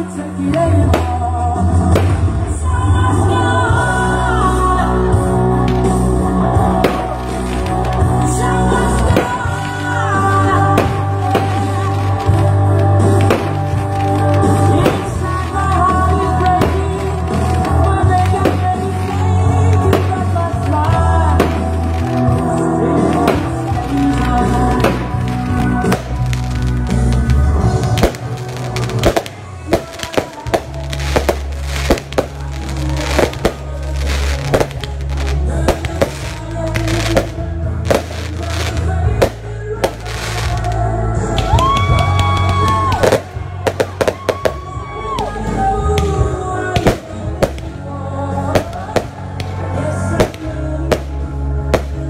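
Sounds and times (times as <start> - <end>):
music with heavy bass: 0.0 - 52.0
fireworks bangs: 0.5 - 3.0, 5.6 - 45.0, 45.6 - 47.8.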